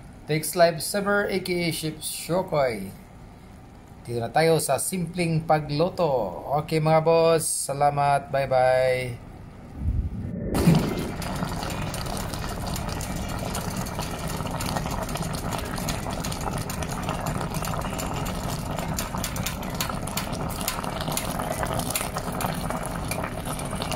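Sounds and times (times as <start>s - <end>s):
low rumble: 9.7s - 13.3s
pot boiling with popping bubbles: 10.6s - 23.9s.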